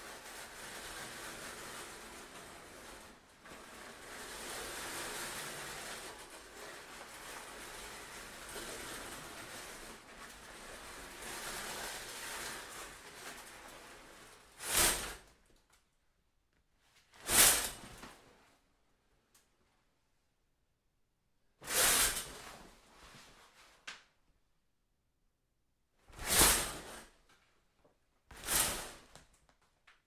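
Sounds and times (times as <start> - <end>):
curtain swishing: 0.0 - 15.5, 16.8 - 18.6, 21.6 - 23.8, 26.0 - 27.2, 28.3 - 29.5
curtain rustling: 0.0 - 15.6, 16.8 - 18.7, 21.6 - 24.2, 26.0 - 30.0.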